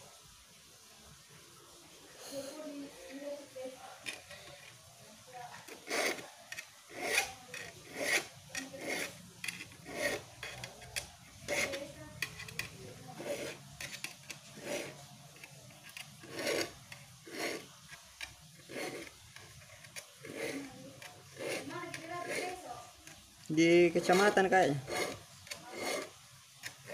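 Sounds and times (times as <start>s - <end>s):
file scraping saw teeth: 5.6s - 23.3s, 24.0s - 26.9s.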